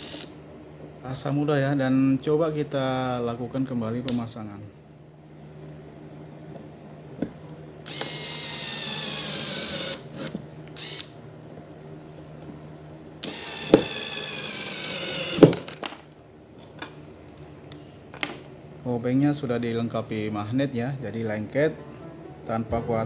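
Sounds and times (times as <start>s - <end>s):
electric screwdriver whine: 0.0s - 0.4s, 7.8s - 11.1s, 13.2s - 15.7s.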